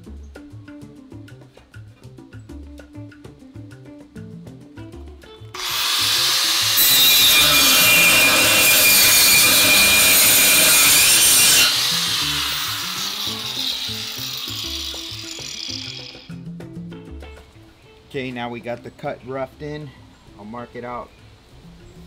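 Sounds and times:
background music: 0:00.0 - 0:22.0
angle grinder cutting aluminium: 0:05.6 - 0:16.3.

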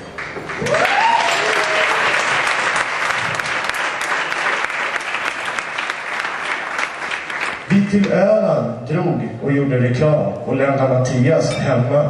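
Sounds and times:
audience applauding: 0:00.0 - 0:07.7
person whooping: 0:00.6 - 0:02.0.

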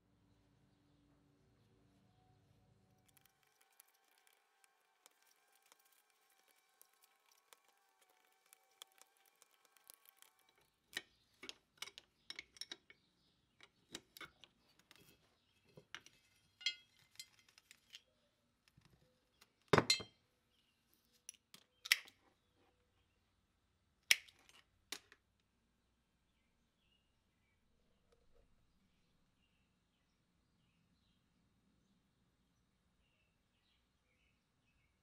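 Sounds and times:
metal parts clinking on workbench: 0:16.6 - 0:18.0.

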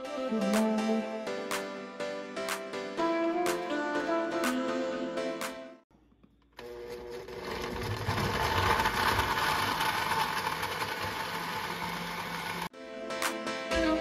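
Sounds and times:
blender motor chopping: 0:06.6 - 0:12.7.

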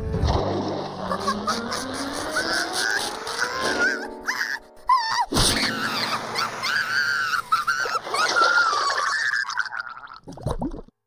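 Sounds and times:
cartoon music: 0:00.8 - 0:08.8
cartoon character whining cries: 0:01.5 - 0:09.7.

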